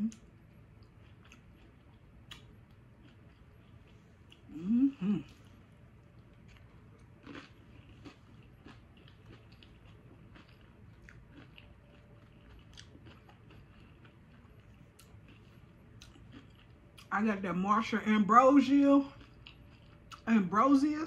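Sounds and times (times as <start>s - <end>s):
chip crunching: 6.1s - 17.2s.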